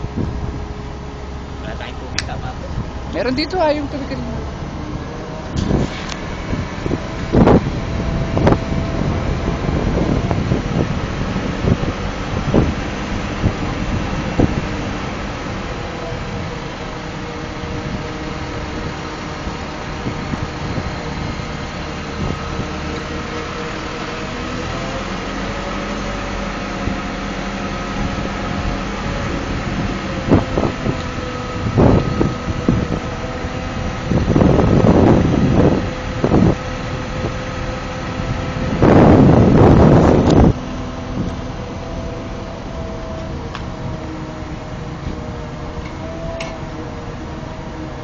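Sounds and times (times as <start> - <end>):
crane engine running: 0.0 - 48.0
loud bursts of rushing noise: 4.0 - 24.5.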